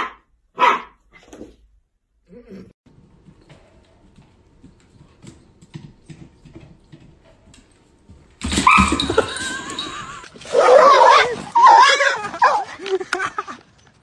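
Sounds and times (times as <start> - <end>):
dog claws clicking on wood floor: 3.2 - 10.6.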